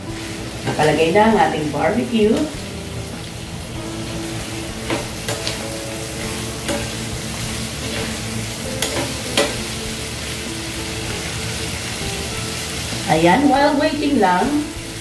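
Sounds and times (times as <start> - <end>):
food sizzling in a pan: 0.0 - 15.0
utensil scraping a pan: 4.0 - 10.2.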